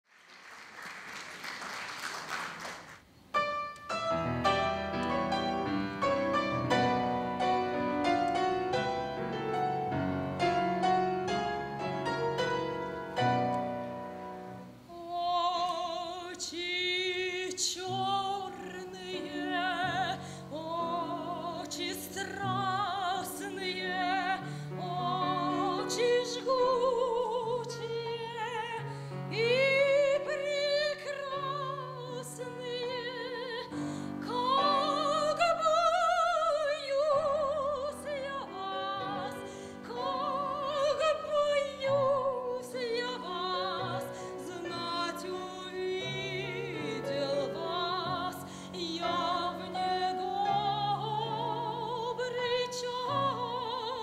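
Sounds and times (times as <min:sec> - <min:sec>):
applause: 0:00.0 - 0:03.1
grand piano: 0:02.5 - 0:54.0
operatic soprano singing: 0:14.7 - 0:54.0.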